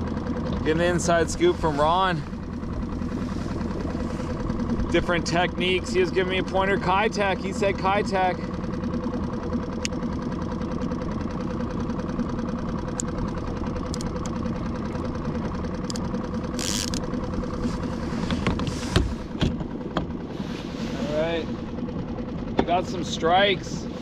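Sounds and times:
outboard motor running: 0.0 - 24.0.

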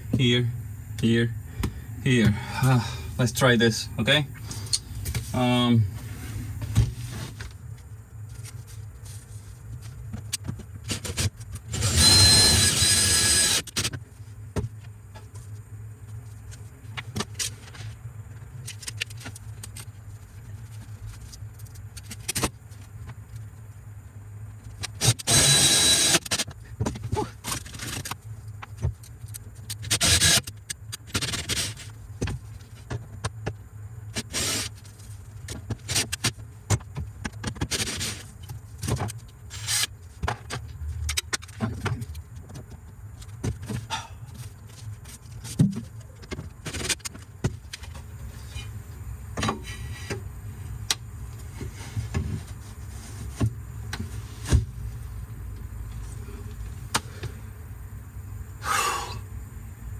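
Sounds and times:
cordless drill whine: 11.7 - 13.7, 25.0 - 26.3, 30.0 - 30.4.

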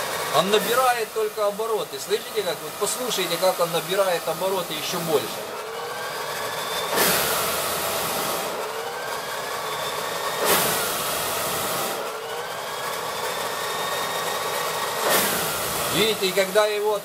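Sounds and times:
blower fan whining: 0.0 - 17.0
burst of air: 6.8 - 8.7, 10.4 - 12.1, 15.0 - 16.0.

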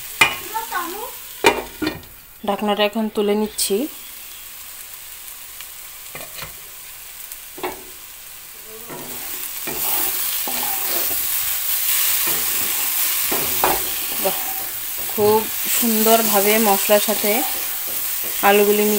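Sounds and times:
masala sizzling: 0.0 - 18.9
spatula scraping pan: 8.7 - 18.9.

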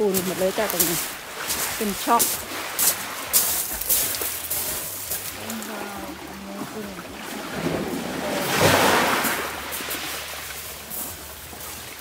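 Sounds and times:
wave breaking on shingle beach: 0.0 - 11.8.

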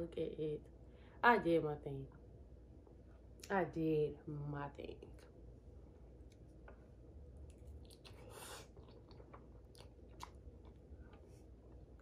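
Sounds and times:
faint chewing: 6.2 - 12.0.

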